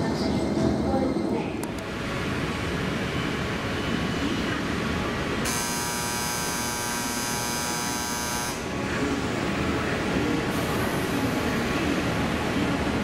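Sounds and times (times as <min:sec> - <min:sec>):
electric train humming: 0:00.0 - 0:13.0
electric buzzer: 0:05.4 - 0:08.7.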